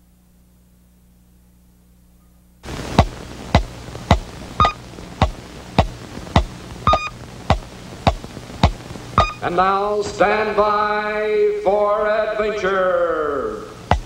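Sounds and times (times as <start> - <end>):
faint low hum: 0.0 - 14.0
steady hiss: 0.0 - 14.0
sharp electronic clicks: 2.9 - 9.5
short beep: 6.9 - 7.1, 9.2 - 9.4.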